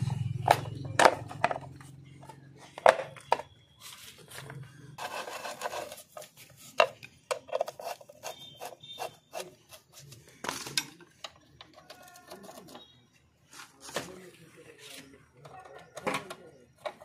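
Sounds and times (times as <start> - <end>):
rubbing scrape: 5.0 - 6.9.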